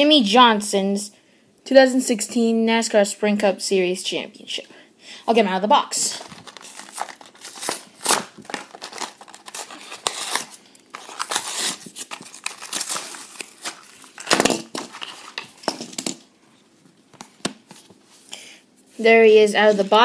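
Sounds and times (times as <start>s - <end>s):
packaging being torn open: 6.3s - 15.4s.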